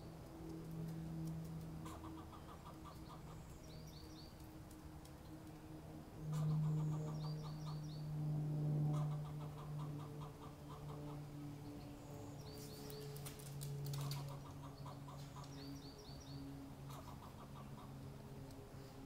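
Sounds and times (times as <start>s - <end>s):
low steady hum: 0.0s - 19.0s
squirrel chattering barks: 1.8s - 4.0s, 8.9s - 11.2s, 16.9s - 17.9s.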